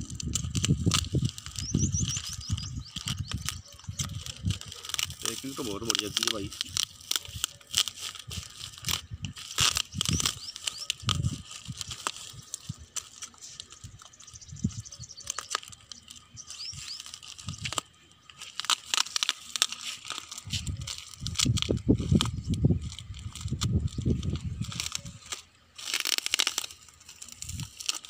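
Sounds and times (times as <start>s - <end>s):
packing material tearing and crinkling: 0.0s - 28.0s
scissors snipping: 3.0s - 12.2s.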